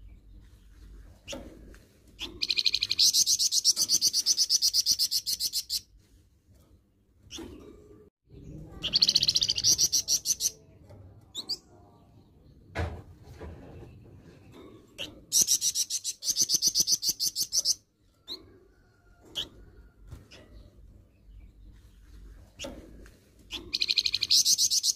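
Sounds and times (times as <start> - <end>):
songbird singing harsh call: 23.5 - 24.9.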